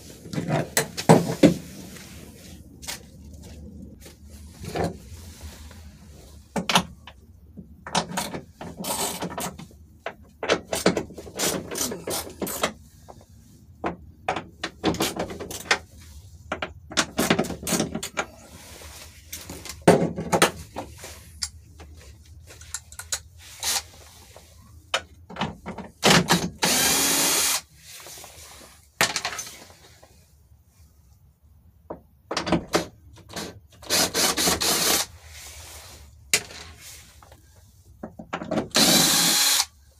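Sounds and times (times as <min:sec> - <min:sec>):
metal parts clicking and knocking: 0:22.5 - 0:23.8
power driver whirring: 0:26.6 - 0:27.6, 0:38.7 - 0:39.7.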